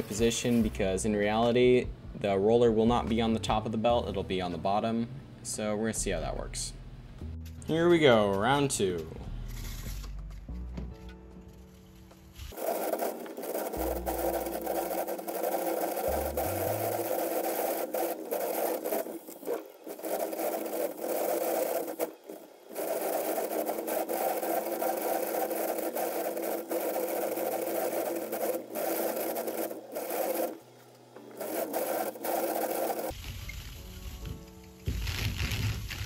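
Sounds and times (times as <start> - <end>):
cardboard belt rattling scrape: 12.4 - 30.6, 31.4 - 33.2, 34.9 - 36.0.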